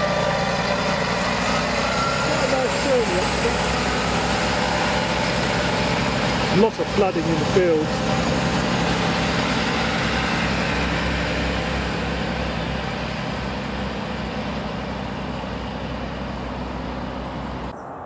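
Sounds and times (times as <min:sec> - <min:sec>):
diesel train engine drone: 0:00.0 - 0:18.0.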